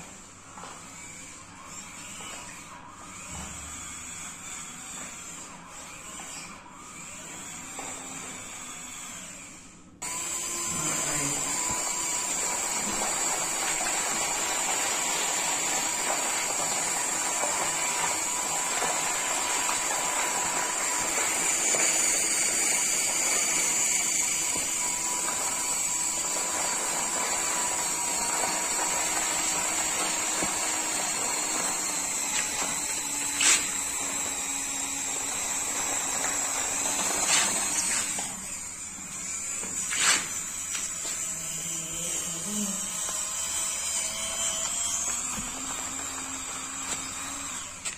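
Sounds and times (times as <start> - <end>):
small electric motor whining: 0.0 - 47.9
blade through sand: 12.3 - 34.1.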